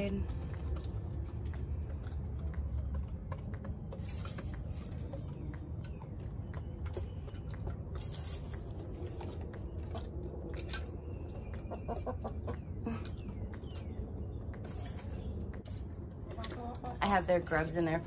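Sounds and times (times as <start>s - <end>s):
hens pecking clicks: 0.0s - 17.7s
hens clucking: 0.0s - 18.0s.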